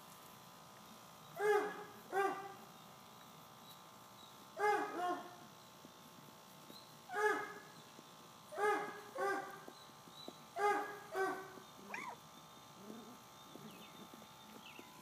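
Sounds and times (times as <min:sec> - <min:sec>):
puppy yelping barks: 0:04.6 - 0:05.3, 0:07.1 - 0:07.6, 0:08.6 - 0:09.6, 0:10.6 - 0:12.2
puppy whining: 0:11.8 - 0:12.2, 0:12.8 - 0:13.8.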